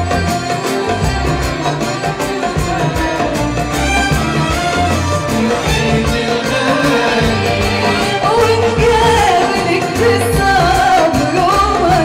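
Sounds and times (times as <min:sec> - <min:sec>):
band playing with low beat: 0:00.0 - 0:12.0
woman singing into microphone: 0:05.4 - 0:12.0.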